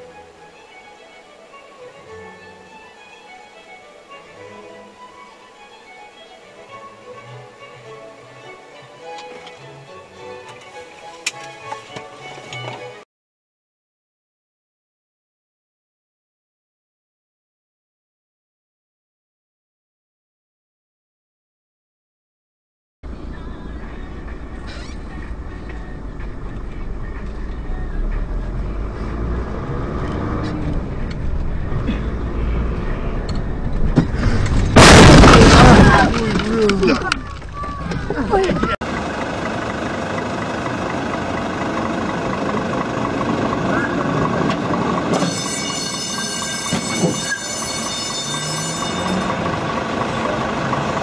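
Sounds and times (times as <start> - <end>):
vehicle engine and road rumble: 23.0 - 51.0
high-pitched metallic squeal: 45.1 - 49.4.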